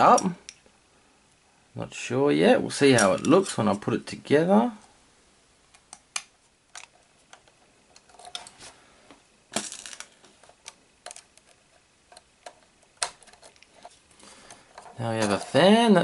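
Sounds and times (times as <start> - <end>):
plastic parts clicking: 5.7 - 8.6, 9.5 - 15.6.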